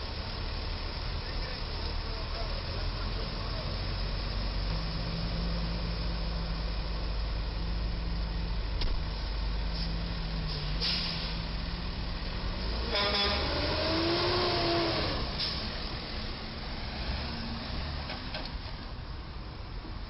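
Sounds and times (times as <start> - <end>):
truck diesel engines idling: 0.0 - 20.0
short air hiss: 10.5 - 11.4
loud horn-like tone: 12.8 - 13.7.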